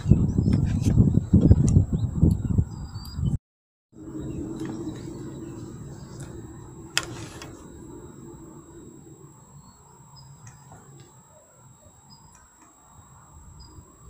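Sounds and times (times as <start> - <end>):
low rumble: 4.0 - 11.0.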